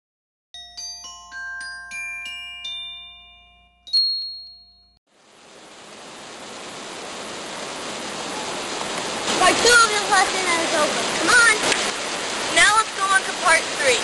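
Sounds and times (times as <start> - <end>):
bell-like chime notes: 0.6 - 5.0
fountain water rushing: 5.1 - 14.0.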